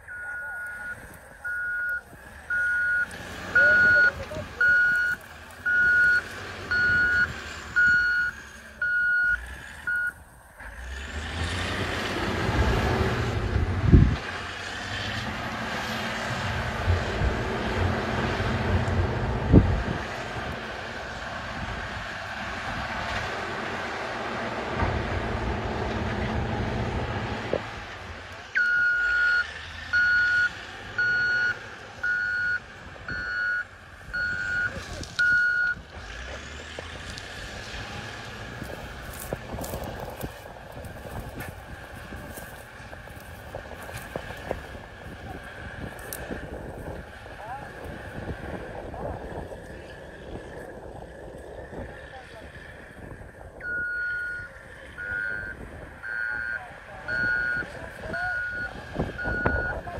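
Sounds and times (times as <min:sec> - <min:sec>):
reversing alarm beeping: 0:00.0 - 0:10.2, 0:28.6 - 0:35.8, 0:53.6 - 0:59.8
heavy machine rumbling: 0:00.0 - 0:59.9.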